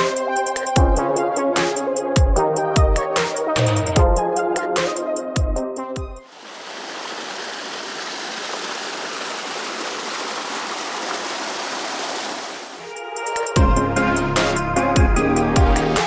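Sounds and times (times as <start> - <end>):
waterfall rushing over rocks: 6.3 - 12.9.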